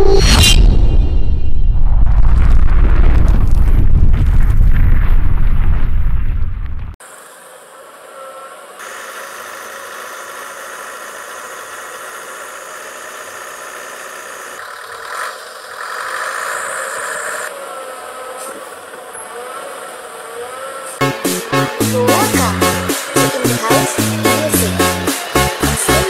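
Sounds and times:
motorcycle engines passing: 14.6s - 26.0s.

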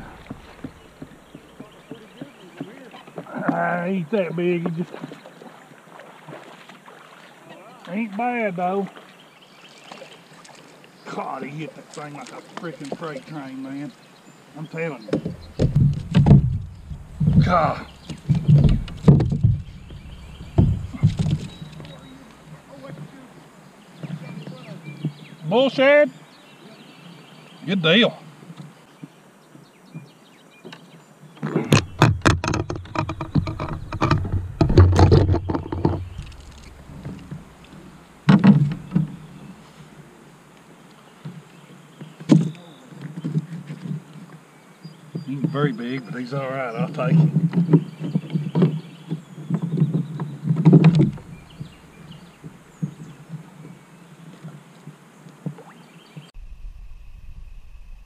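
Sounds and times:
knocks and thumps on plastic kayak: 0.0s - 3.7s, 15.0s - 23.1s, 31.4s - 39.6s, 47.0s - 53.8s
knocks against plastic kayak hull: 15.1s - 21.6s.

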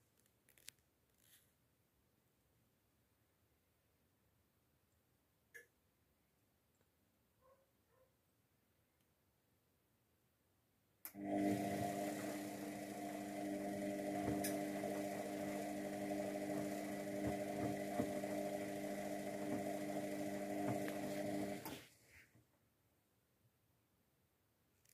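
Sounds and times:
washing machine humming: 11.1s - 21.8s.

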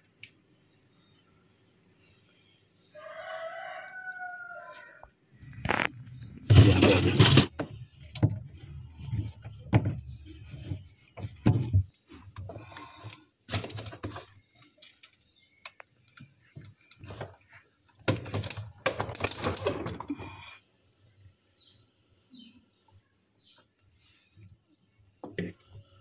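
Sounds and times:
rustling and scraping: 4.8s - 15.5s, 16.1s - 20.4s
clicks knocks and scrapes: 5.4s - 20.2s.

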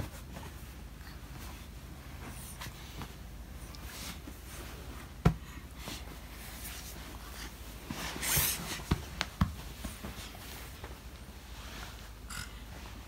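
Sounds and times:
hands rustling bedding: 0.0s - 13.0s
light taps on bedding: 5.1s - 5.5s, 7.9s - 11.3s.

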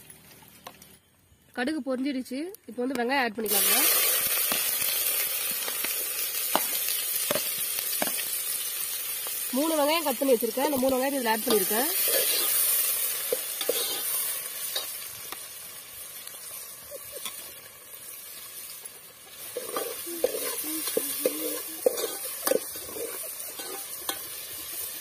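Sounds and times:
onions sizzling in oil: 2.8s - 25.0s
metal ladle scraping pot: 11.5s - 14.9s, 19.4s - 24.8s.

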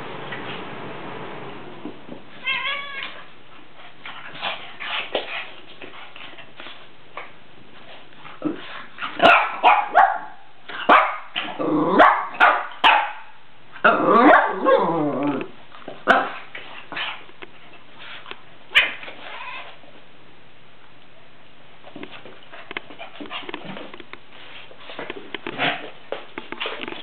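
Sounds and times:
small dog barking: 9.2s - 11.4s, 12.0s - 14.8s, 16.0s - 16.4s.

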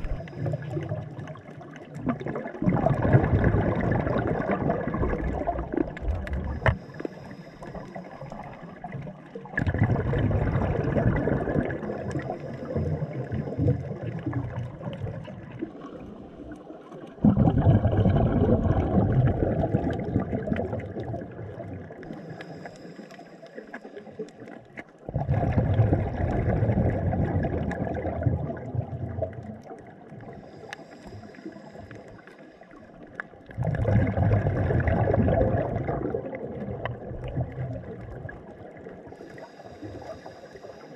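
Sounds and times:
rush of exhaled bubbles underwater: 0.0s - 40.9s
faint inhalation hiss: 6.6s - 8.5s, 22.1s - 24.3s, 30.3s - 33.0s, 39.1s - 40.9s.

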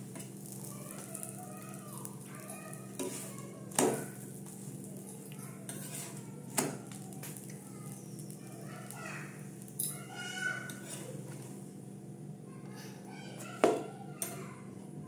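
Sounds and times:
metal spatula clacking on griddle: 2.4s - 4.6s, 5.7s - 7.4s.

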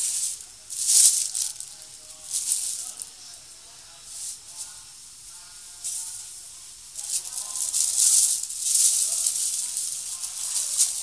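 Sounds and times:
plastic bag rustling: 0.0s - 3.3s, 7.0s - 11.0s.

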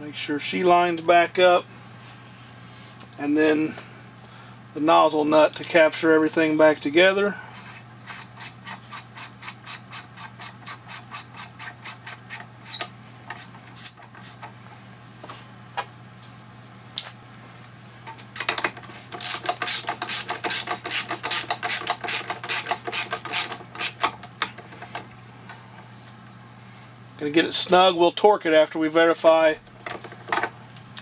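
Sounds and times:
hand ratchet clicking: 8.0s - 12.8s, 19.2s - 24.1s.

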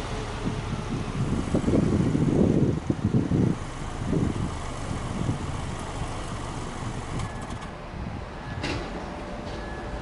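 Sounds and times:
car engine revving and idling: 0.0s - 7.7s.

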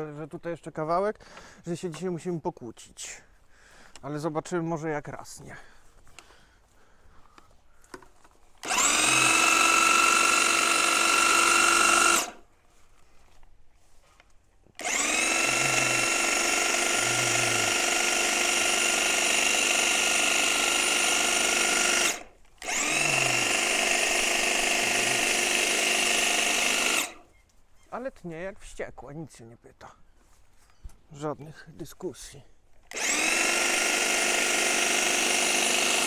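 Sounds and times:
electric hedge trimmer whining: 8.5s - 12.5s, 14.7s - 27.3s, 32.8s - 36.0s.

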